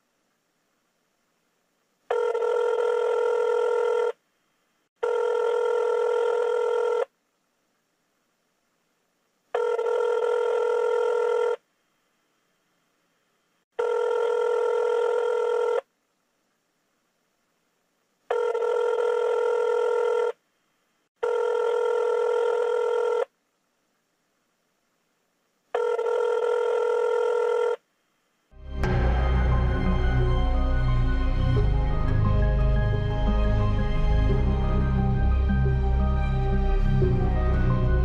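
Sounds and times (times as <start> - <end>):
telephone ringing tone: 2.1 - 4.2, 5.0 - 7.1, 9.6 - 11.6, 13.8 - 15.9, 18.3 - 20.4, 21.2 - 23.3, 25.8 - 27.8.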